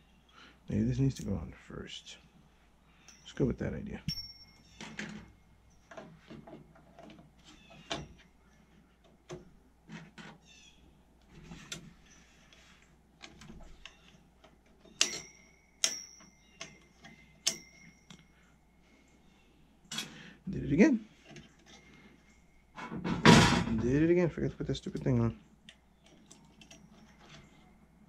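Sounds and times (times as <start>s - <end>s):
small metal parts clicking and tapping: 13.2s - 18.4s, 24.8s - 27.6s
sharp metallic clicks: 14.8s - 18.2s.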